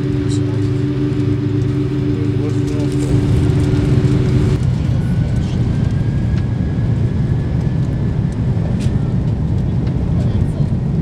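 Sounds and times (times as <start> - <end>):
faint high whine: 0.0 - 4.6
low rumble of engines and airflow: 0.0 - 11.0.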